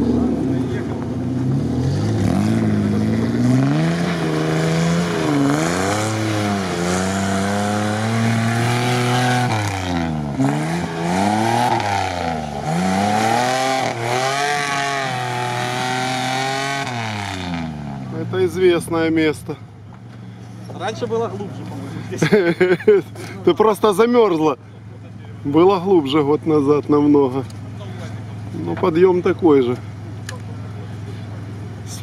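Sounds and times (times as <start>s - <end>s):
engine revving hard: 1.4s - 18.1s.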